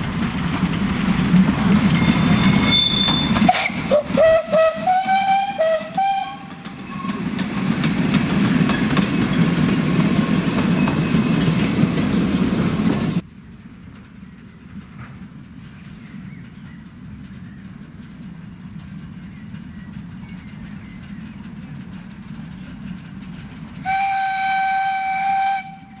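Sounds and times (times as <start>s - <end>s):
steam train rumbling and rattling: 0.0s - 26.0s
high-pitched wheel squeals: 2.0s - 3.8s.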